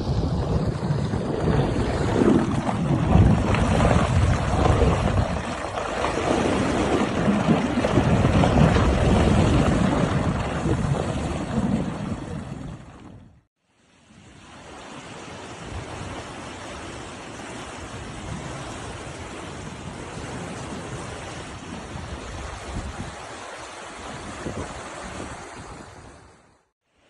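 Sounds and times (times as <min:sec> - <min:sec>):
meltwater rushing: 0:00.0 - 0:13.2
wind gusting on microphone: 0:00.0 - 0:13.5, 0:14.1 - 0:26.6.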